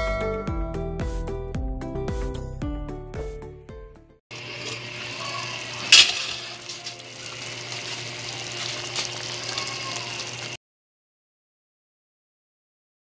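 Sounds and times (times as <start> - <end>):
food sizzling in a pot: 4.3 - 10.6
pot lid clink: 5.8 - 7.0.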